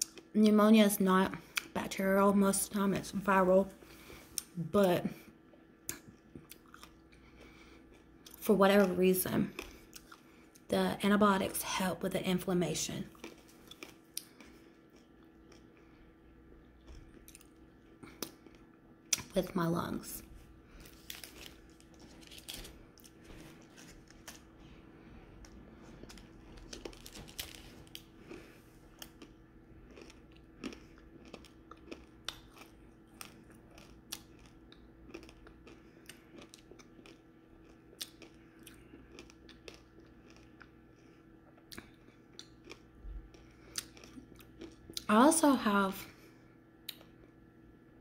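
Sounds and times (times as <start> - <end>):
chewing candy: 5.9 - 10.7, 13.1 - 19.3, 25.4 - 45.1.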